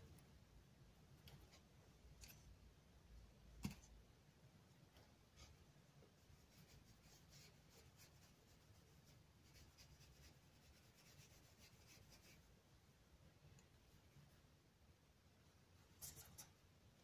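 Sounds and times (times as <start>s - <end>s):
low room hum: 0.0s - 17.0s
paintbrush strokes on paper: 5.3s - 12.6s.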